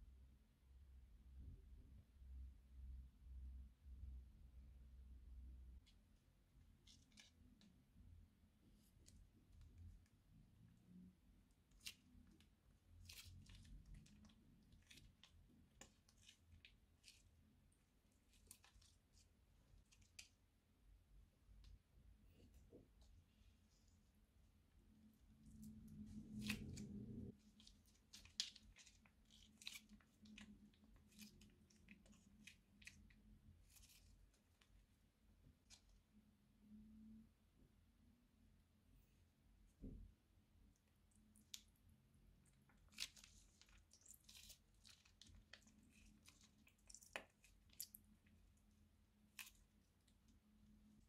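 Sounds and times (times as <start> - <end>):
slime squelching: 8.6 - 36.1, 40.8 - 51.0.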